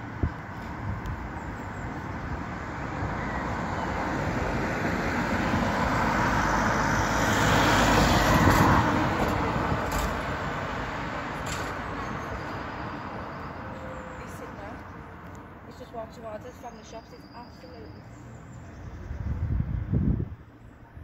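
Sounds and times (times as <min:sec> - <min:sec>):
minibus driving past: 0:00.8 - 0:15.7.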